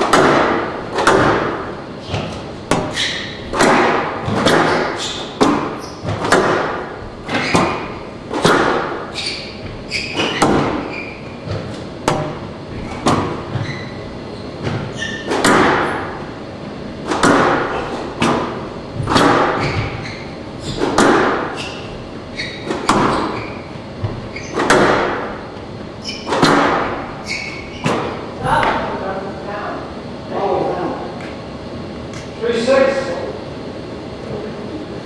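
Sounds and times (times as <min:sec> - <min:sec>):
squash ball cracking off racquets: 0:00.0 - 0:14.0, 0:14.6 - 0:16.3, 0:17.0 - 0:28.9
court shoes squeaking: 0:00.0 - 0:29.0.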